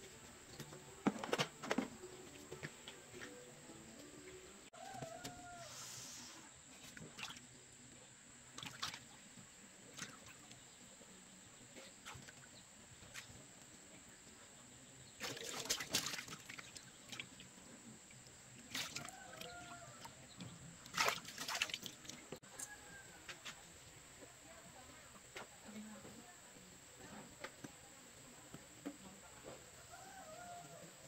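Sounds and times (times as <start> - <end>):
water sloshing and splashing: 15.2 - 17.5, 18.6 - 20.2, 20.8 - 22.4.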